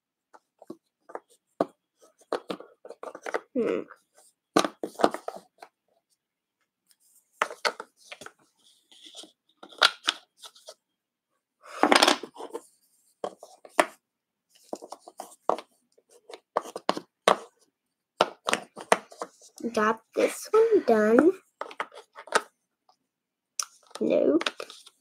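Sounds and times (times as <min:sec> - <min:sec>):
wooden puzzle pieces clacking: 0:02.2 - 0:03.5, 0:09.1 - 0:10.7, 0:11.8 - 0:12.6, 0:21.6 - 0:22.5, 0:23.7 - 0:24.9.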